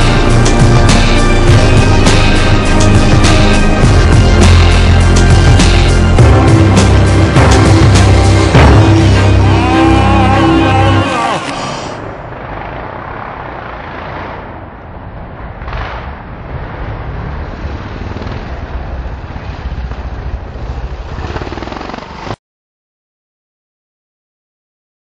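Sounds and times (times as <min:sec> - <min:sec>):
motocross bike engines: 0:09.2 - 0:22.4.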